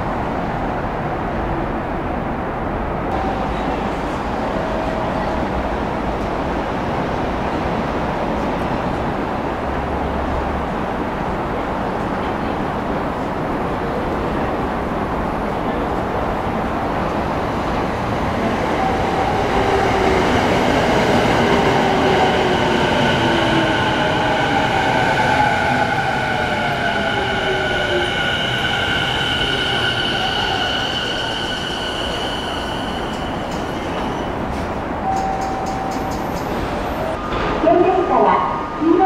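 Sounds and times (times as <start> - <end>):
steady high tones: 22.3 - 36.2.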